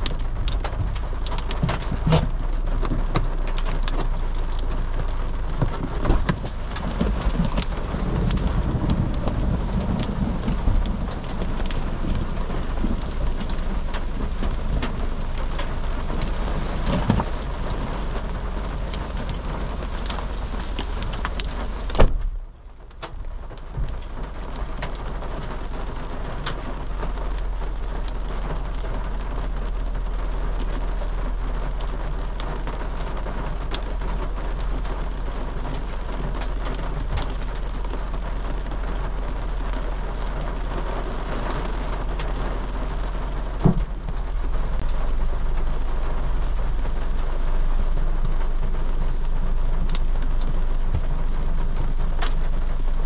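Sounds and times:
hailstones ticking: 0.0 - 53.0
heavy rain: 0.0 - 53.0
thump: 22.0 - 22.4.

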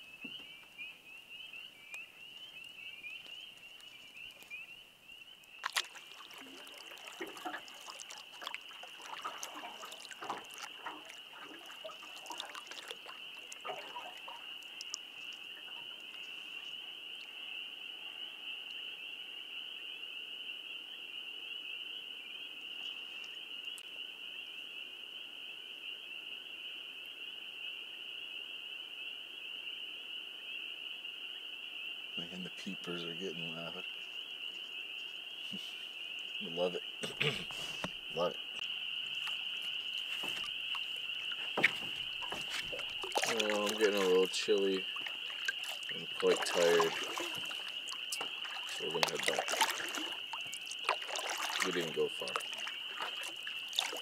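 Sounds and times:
spring peepers chorus: 0.0 - 54.0
paddle strokes splashing water: 5.5 - 17.2, 38.9 - 54.0.

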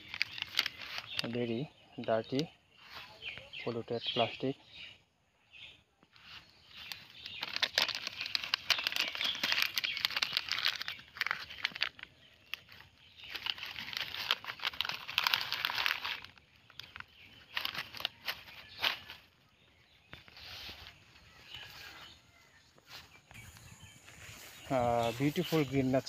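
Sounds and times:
plastic packet crinkling: 0.0 - 1.5, 6.2 - 19.3.

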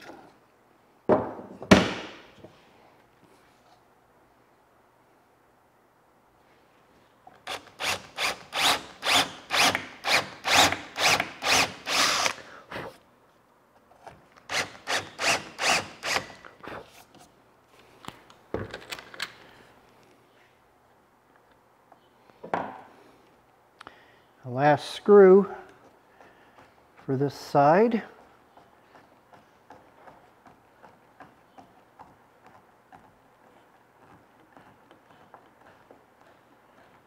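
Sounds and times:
cordless drill driving screws: 7.5 - 12.4, 14.5 - 16.4.

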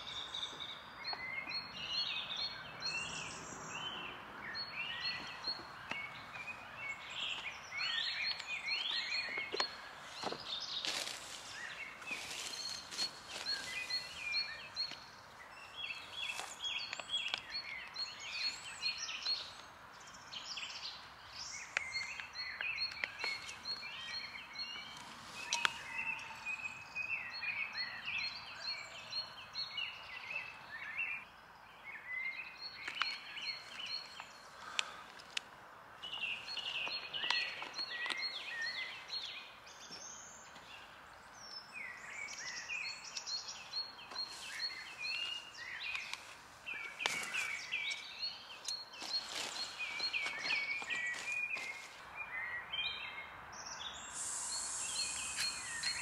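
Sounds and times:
songbirds singing: 0.0 - 56.0
faint steady hiss: 53.8 - 56.0.

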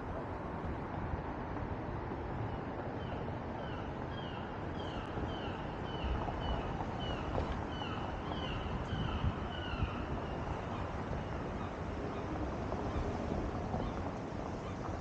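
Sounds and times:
wind on microphone: 8.4 - 15.0.

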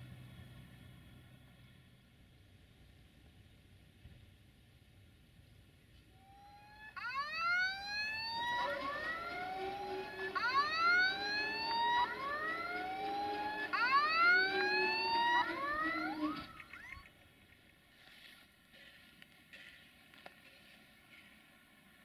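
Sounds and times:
siren rising whoop: 6.2 - 17.1.

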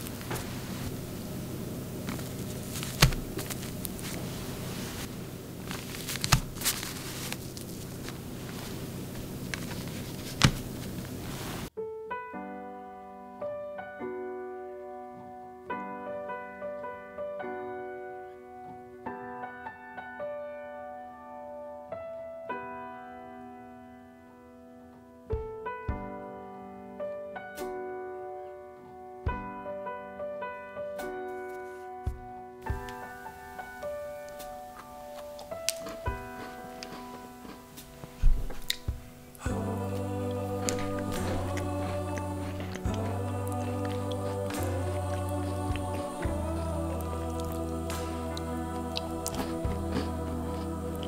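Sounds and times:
room hiss: 0.0 - 11.8, 32.6 - 51.0
solo piano music: 0.0 - 51.0.

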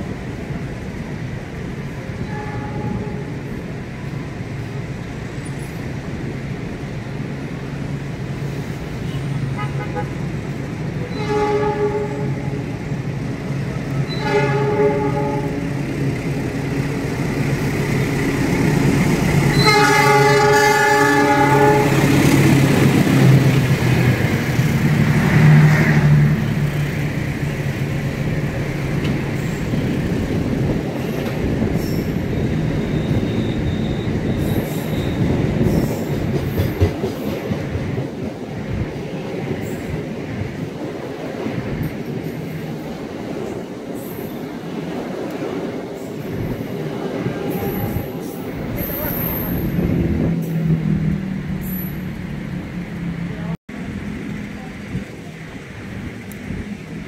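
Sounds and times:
train rumbling and rattling past: 0.0 - 57.0
train horn blasts: 2.2 - 3.4, 11.1 - 12.7, 14.1 - 15.8, 19.5 - 22.1.

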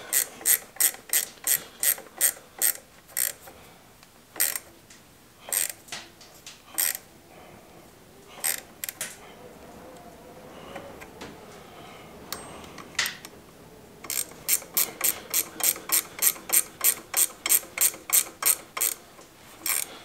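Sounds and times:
ratchet wrench clicking: 0.1 - 3.4, 4.4 - 4.7, 5.5 - 5.8, 6.8 - 7.0, 8.4 - 9.0, 14.0 - 19.0, 19.6 - 19.9.

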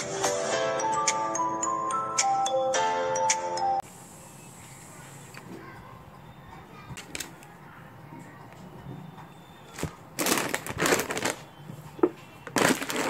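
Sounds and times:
snack packets crinkling: 9.7 - 11.6, 12.4 - 13.0.

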